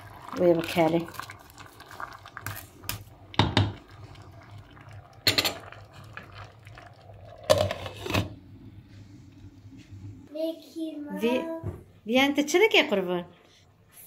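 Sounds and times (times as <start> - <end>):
wooden spoon knocking on pot: 3.4 - 3.8.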